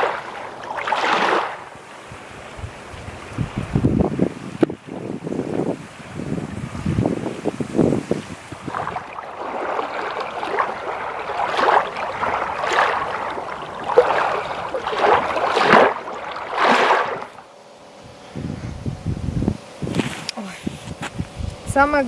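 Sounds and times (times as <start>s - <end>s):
wind buffeting microphone: 0.0s - 17.4s, 18.0s - 22.0s
small waves washing onto shore: 0.0s - 17.5s.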